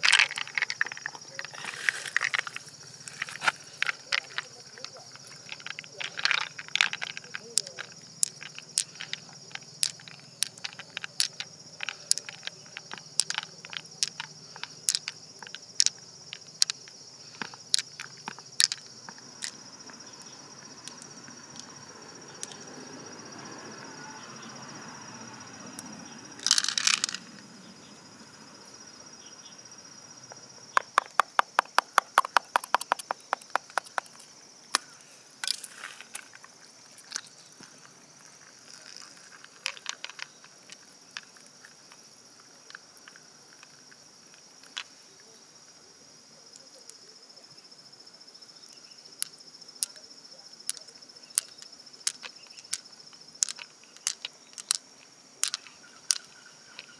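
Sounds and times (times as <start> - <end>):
wet clicks and crackles: 0.0 - 16.8, 30.8 - 37.8, 38.7 - 41.8, 50.7 - 56.9
high insect buzz: 0.0 - 56.9.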